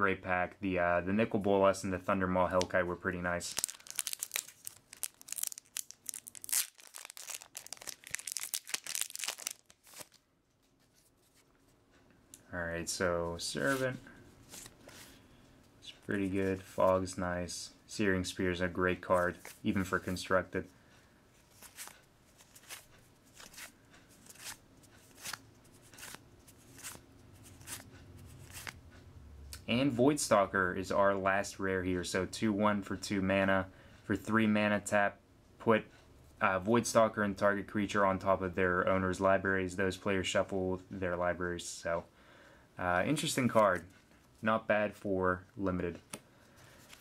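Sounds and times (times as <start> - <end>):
foil wrapper tearing and crinkling: 3.5 - 10.2
cards being flipped: 3.5 - 11.6, 13.6 - 15.2, 21.4 - 28.8.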